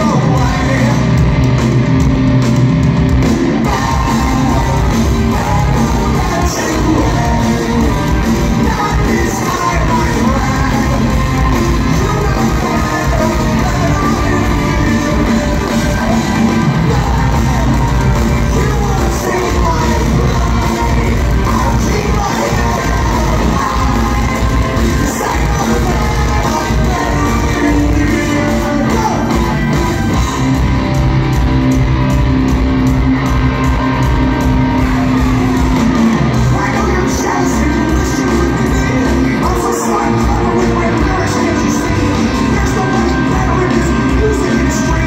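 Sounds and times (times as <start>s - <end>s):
live rock band: 0.0s - 45.0s
person singing: 3.4s - 30.7s, 33.7s - 45.0s
crowd shouting along: 3.4s - 30.9s, 32.6s - 45.0s.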